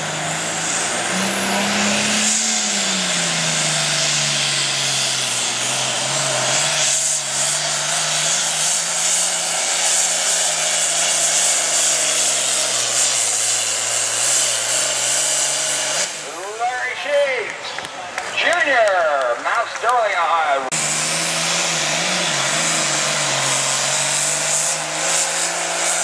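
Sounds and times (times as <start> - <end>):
tractor diesel engine droning: 0.0 - 26.0.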